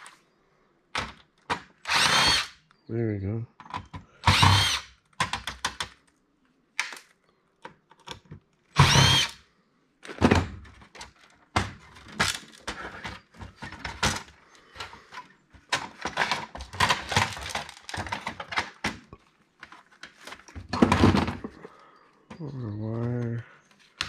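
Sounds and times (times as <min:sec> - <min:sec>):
metal and plastic parts clattering: 0:10.0 - 0:21.7.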